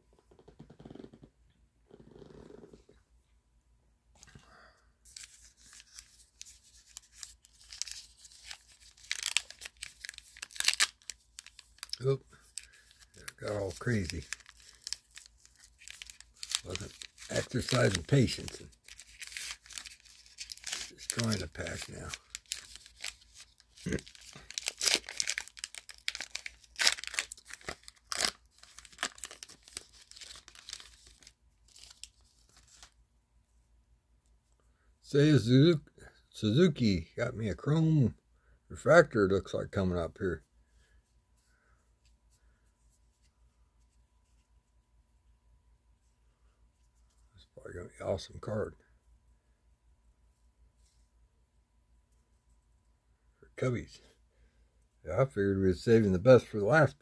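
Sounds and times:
wrapper tearing and crinkling: 5.1s - 33.0s.

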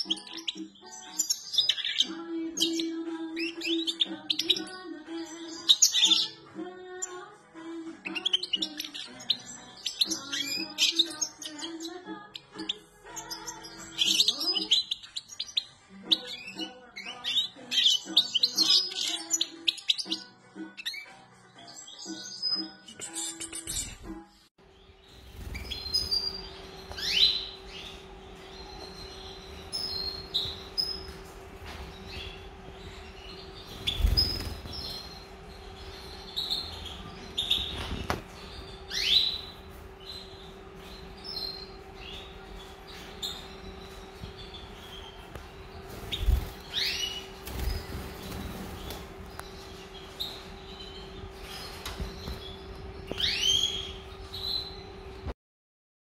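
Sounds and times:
bird chirping calls: 0.0s - 6.4s, 8.0s - 24.0s, 24.7s - 55.3s
goldfinch twittering: 8.0s - 21.0s, 25.1s - 54.8s
steady low hum: 24.6s - 55.3s.

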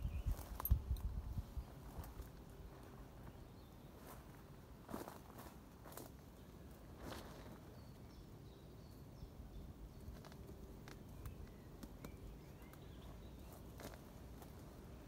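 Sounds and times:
faint high bird chirps: 0.0s - 2.2s
footsteps crunching dry twigs: 4.0s - 6.2s, 10.1s - 14.8s.

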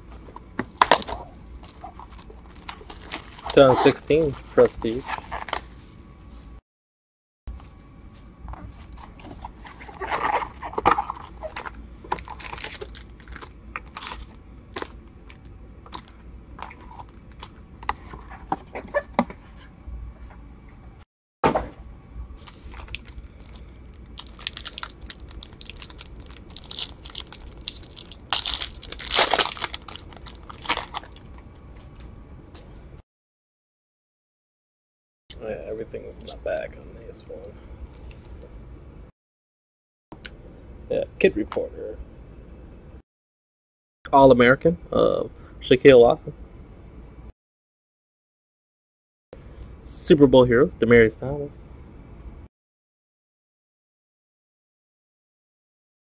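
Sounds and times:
foil packs crinkling and tearing: 0.8s - 5.6s, 9.9s - 14.9s, 22.4s - 31.3s.

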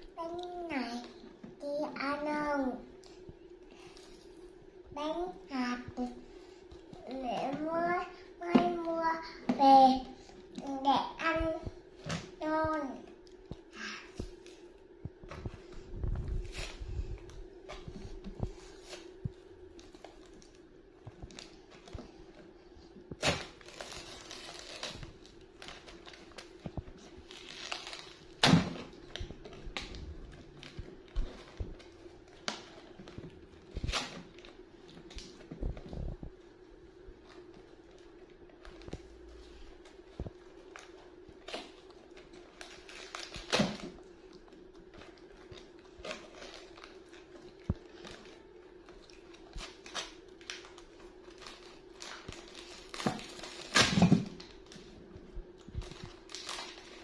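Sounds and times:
faint steady hum: 0.0s - 57.0s
paper wrappers crinkling: 23.2s - 35.7s, 37.3s - 57.0s.

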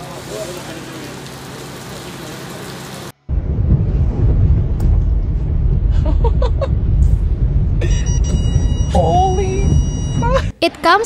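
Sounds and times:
floodwater low rumble: 0.0s - 10.6s
steady high tone: 7.8s - 10.6s.

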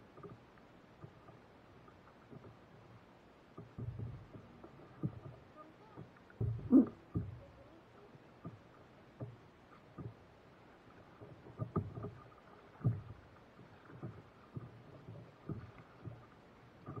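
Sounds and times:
faint wash of water: 0.0s - 17.0s
water slapping against paddleboard: 3.5s - 17.0s.

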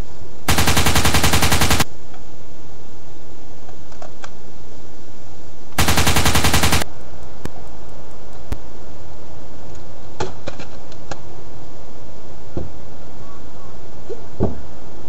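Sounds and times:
loud steady noise: 0.4s - 2.0s, 5.7s - 7.6s.

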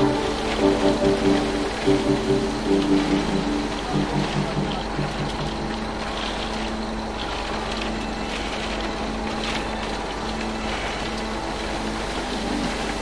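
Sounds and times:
soft background music: 0.0s - 13.0s.

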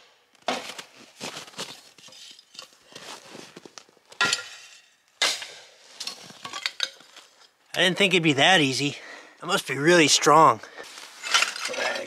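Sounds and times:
cast iron pipe struck and shattering: 4.2s - 7.0s, 11.2s - 12.0s.

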